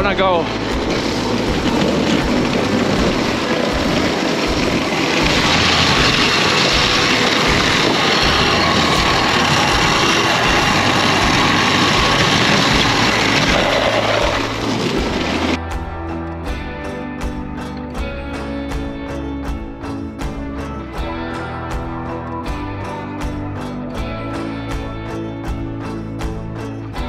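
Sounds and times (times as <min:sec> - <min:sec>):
sled brake scraping over ice: 0:00.0 - 0:15.6.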